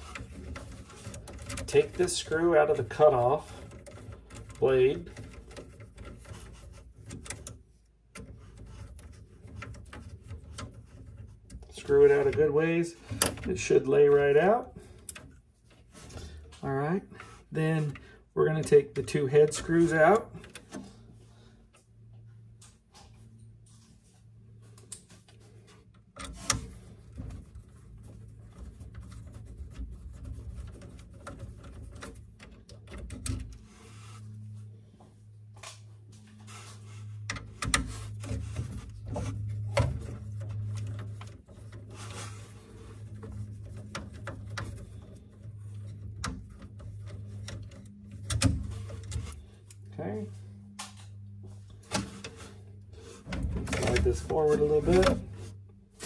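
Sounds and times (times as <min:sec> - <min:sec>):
screwdriver clicking and scraping: 0:00.0 - 0:16.6, 0:24.8 - 0:33.7, 0:37.1 - 0:49.8
steady low hum: 0:00.0 - 0:56.0.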